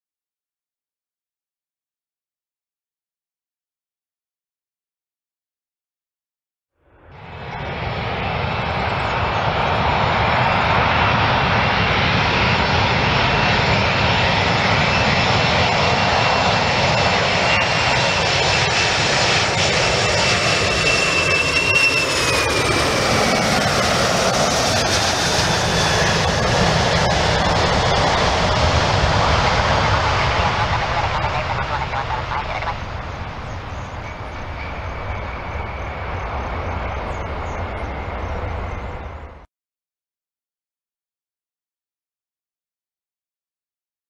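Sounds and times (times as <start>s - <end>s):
jet airliner roar and whine: 6.8s - 39.5s.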